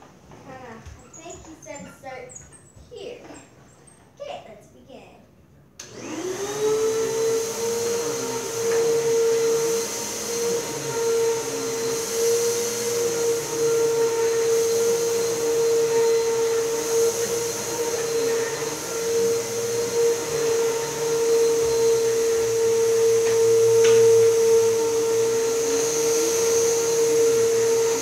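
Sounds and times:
vacuum cleaner motor whining: 0:05.8 - 0:28.0.

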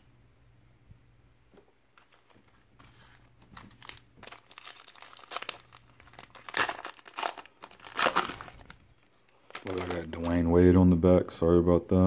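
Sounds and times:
foil wrapper crinkling and tearing: 0:02.0 - 0:10.6.

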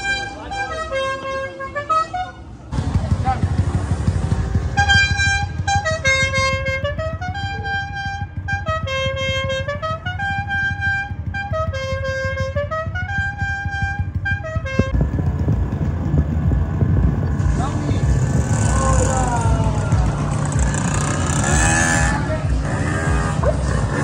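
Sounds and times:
musical vehicle horn melody: 0:00.0 - 0:02.7, 0:04.6 - 0:15.2, 0:20.4 - 0:24.0
motorbike engines rumbling: 0:00.0 - 0:24.0.

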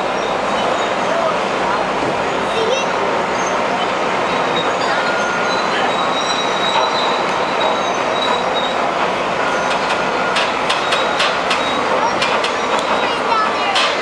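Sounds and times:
heavy machinery running: 0:00.0 - 0:14.0
metal squeals: 0:03.3 - 0:13.3
sharp metallic clanks: 0:09.5 - 0:14.0.

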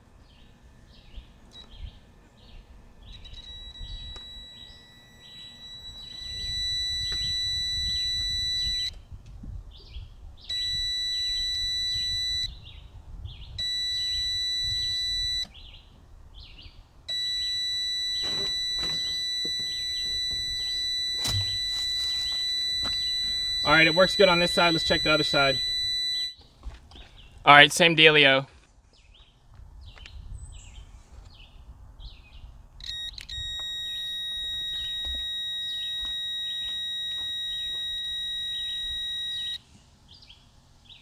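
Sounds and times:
multimeter continuity beep: 0:01.1 - 0:09.0, 0:10.5 - 0:12.6, 0:13.5 - 0:15.6, 0:17.1 - 0:26.4, 0:32.8 - 0:39.6.

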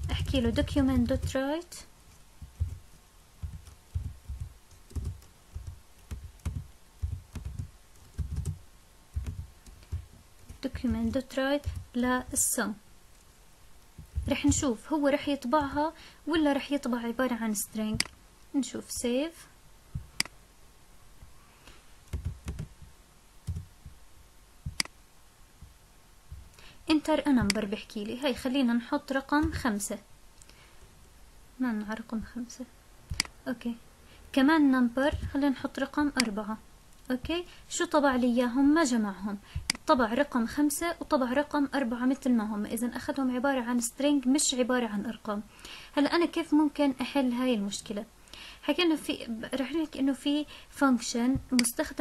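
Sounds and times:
keyboard typing: 0:00.0 - 0:01.4, 0:02.1 - 0:12.4, 0:14.0 - 0:14.8, 0:15.4 - 0:15.9, 0:17.9 - 0:18.2, 0:22.0 - 0:24.0, 0:24.7 - 0:25.0, 0:33.1 - 0:33.4, 0:35.1 - 0:35.4
sharp mouse click: 0:24.7 - 0:25.0, 0:33.1 - 0:33.4.

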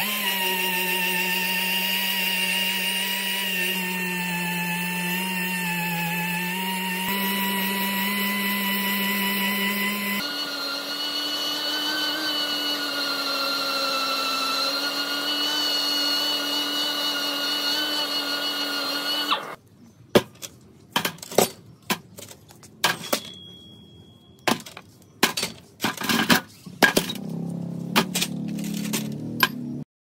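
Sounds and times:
orbital sander whining: 0:00.0 - 0:19.6
metal parts clanking in tray: 0:20.4 - 0:23.6, 0:24.5 - 0:27.4, 0:28.0 - 0:29.6.

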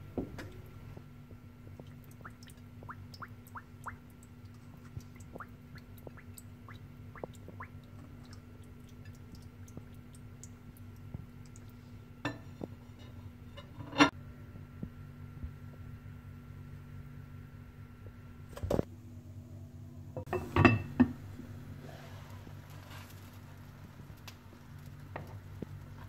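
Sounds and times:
water dripping plinks: 0:01.7 - 0:11.8.

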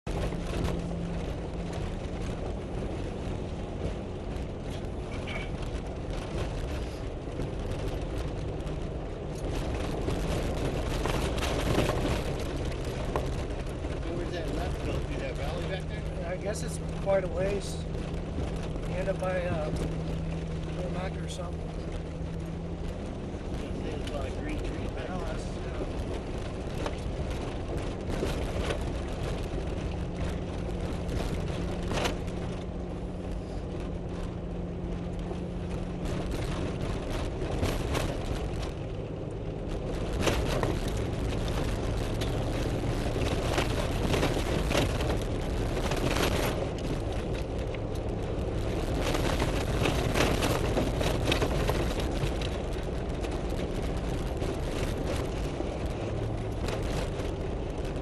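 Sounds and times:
vehicle engine running: 0:00.0 - 0:58.0
knocks and rattles over rocks: 0:00.1 - 0:58.0
tyres on gravel: 0:04.2 - 0:34.4.

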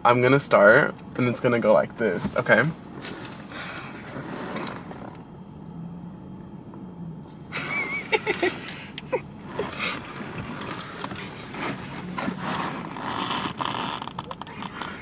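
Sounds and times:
low car interior hum: 0:00.0 - 0:15.0
people giggling and laughing: 0:07.5 - 0:09.8.

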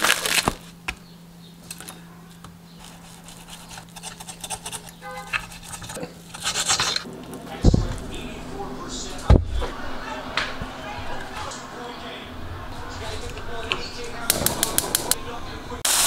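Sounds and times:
plastic wrap crinkling: 0:00.0 - 0:00.8.

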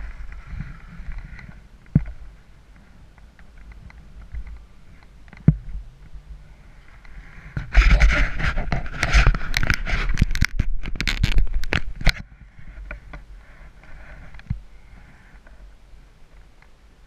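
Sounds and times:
skis scraping over snow: 0:06.5 - 0:10.3.

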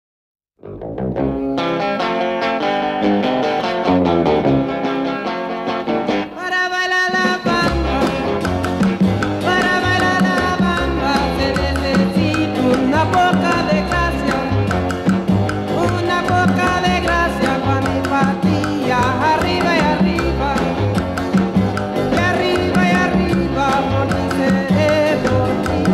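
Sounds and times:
bass line: 0:00.6 - 0:01.7, 0:03.9 - 0:04.8, 0:07.4 - 0:25.9
plucked string melody: 0:00.6 - 0:06.4, 0:07.1 - 0:25.9
steady beat: 0:07.6 - 0:25.9.

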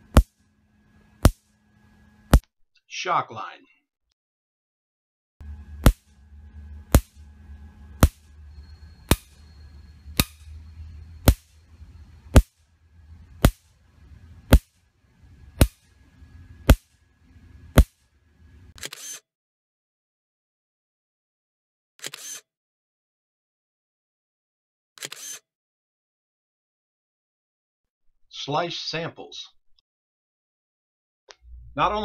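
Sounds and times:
electric fence sparks snapping: 0:00.0 - 0:00.4, 0:05.8 - 0:06.2, 0:06.9 - 0:07.2
low hum: 0:05.4 - 0:18.8, 0:31.4 - 0:32.0.

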